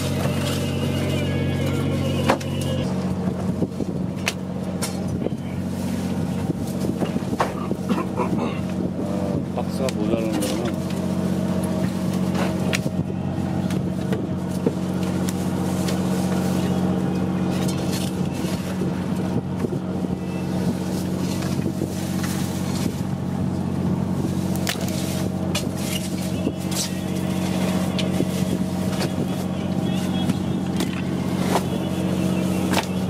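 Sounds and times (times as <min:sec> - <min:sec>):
boat engine humming: 0:00.0 - 0:33.0.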